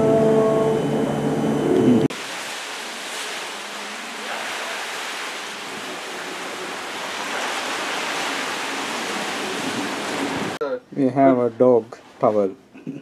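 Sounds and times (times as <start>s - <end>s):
sea water rushing past ship: 0.0s - 10.6s.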